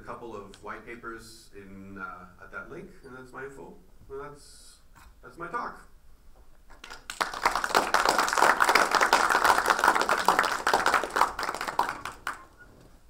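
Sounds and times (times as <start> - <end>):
audience applauding: 6.7 - 12.6.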